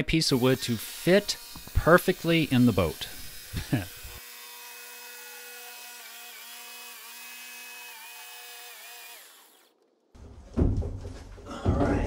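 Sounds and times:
jigsaw cutting wood: 0.3 - 9.8
loud knock: 10.4 - 12.0.

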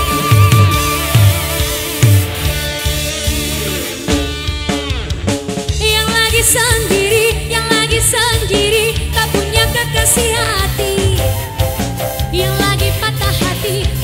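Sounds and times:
live band with drum kit: 0.0 - 14.0
woman singing with vibrato: 5.8 - 14.0.

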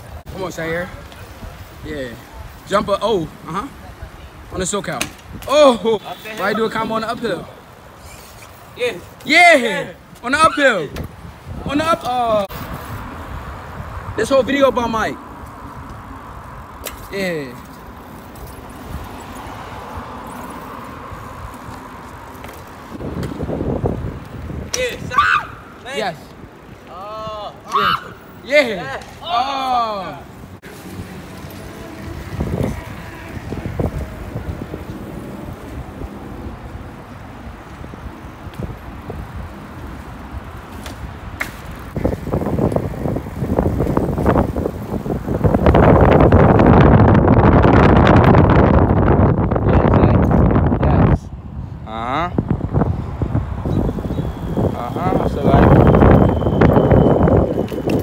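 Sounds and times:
bicycles rolling on asphalt: 0.0 - 58.0
wind rumble on microphone: 10.8 - 16.8, 17.8 - 25.2, 31.0 - 58.0.

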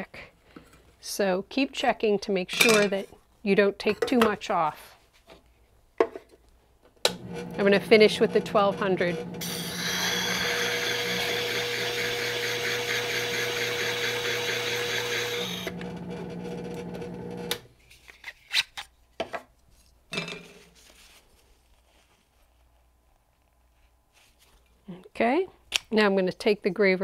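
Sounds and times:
motor hum: 7.1 - 17.7
grinding hiss: 9.4 - 12.7.

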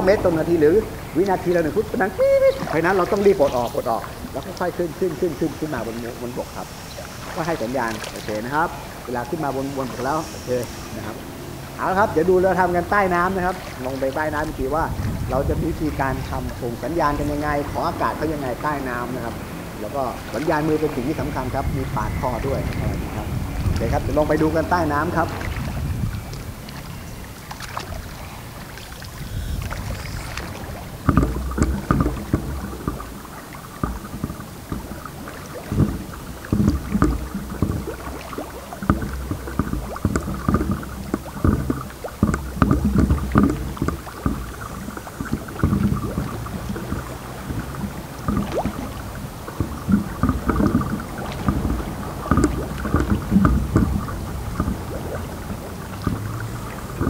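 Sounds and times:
regulator hiss: 0.0 - 12.3
bubbles rumbling underwater: 0.0 - 57.0
underwater regulator breathing: 5.6 - 11.8, 27.0 - 33.1.

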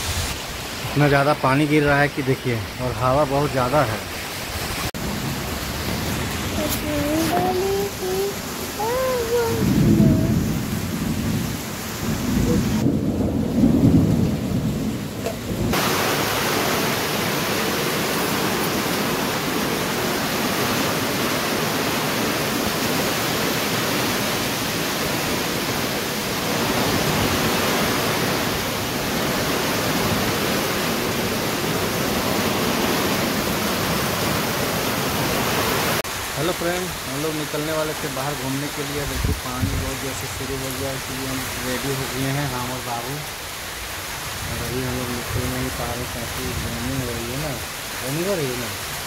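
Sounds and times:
heavy rain on concrete: 0.0 - 49.0
low rumbling: 8.3 - 16.0.

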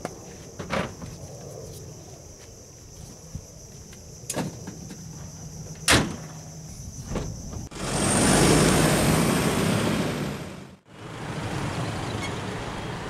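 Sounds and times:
road noise of truck driving: 6.4 - 13.0
pickup truck driving past: 7.7 - 13.0.

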